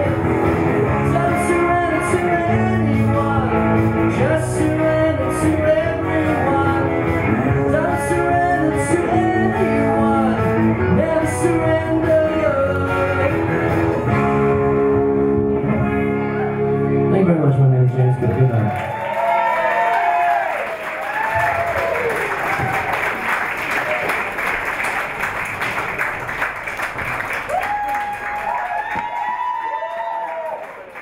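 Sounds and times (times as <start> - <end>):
man singing: 0.0 - 14.2
electric guitar: 0.0 - 18.8.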